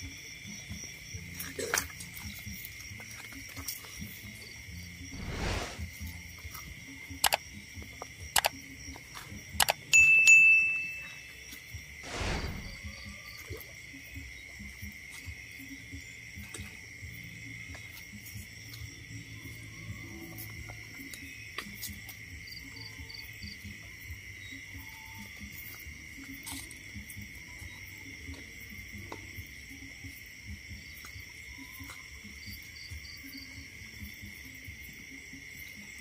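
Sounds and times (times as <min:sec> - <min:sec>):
crickets trilling: 0:00.0 - 0:36.0
ringing bell chime: 0:09.9 - 0:11.4.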